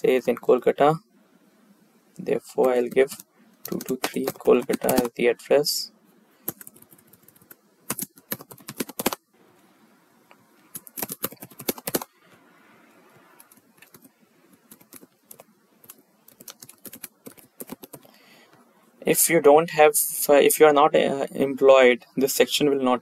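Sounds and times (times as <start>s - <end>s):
computer keyboard typing: 2.6s - 5.2s, 6.4s - 9.2s, 10.7s - 12.1s, 13.4s - 18.2s.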